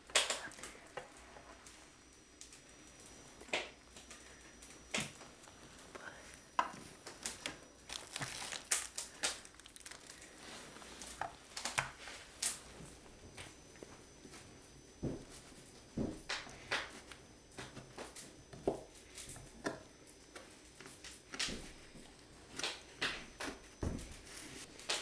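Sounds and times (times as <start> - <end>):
crinkling and rustling: 0.0 - 14.6.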